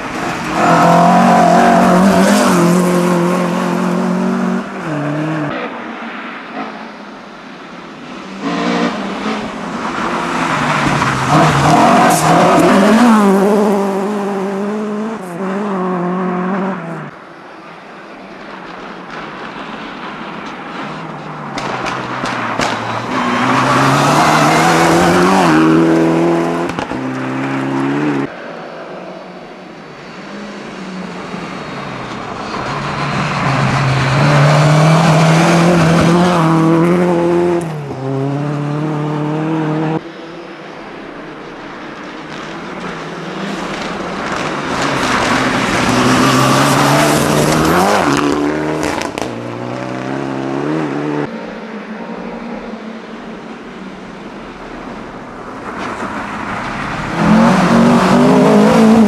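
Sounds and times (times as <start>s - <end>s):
rally cars revving past: 8.3s - 17.1s, 21.6s - 28.4s, 32.4s - 40.4s, 43.3s - 52.4s, 55.8s - 59.0s.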